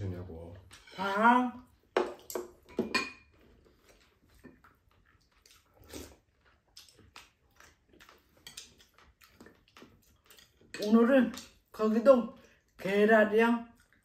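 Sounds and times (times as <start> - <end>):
chewing: 1.6 - 12.9, 13.6 - 14.0
chopsticks clicking on bowls: 6.8 - 11.6.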